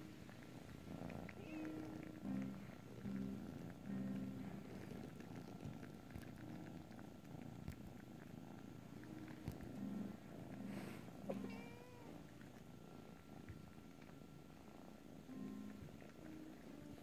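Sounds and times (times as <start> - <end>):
kitten purring: 0.0 - 17.0.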